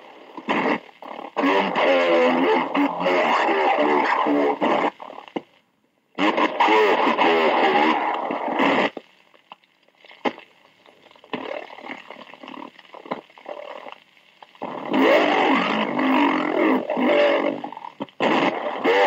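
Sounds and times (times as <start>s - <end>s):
faint radio noise: 0.0s - 19.0s
radio clicks: 0.1s - 5.6s, 6.2s - 19.0s
slowed radio voice: 0.5s - 5.0s, 6.2s - 9.0s, 14.5s - 19.0s.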